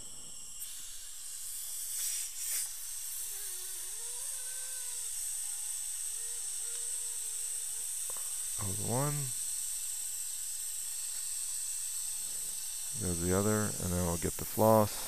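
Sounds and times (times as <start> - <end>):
dental suction hissing: 0.0 - 15.0
suction slurps: 1.4 - 3.6.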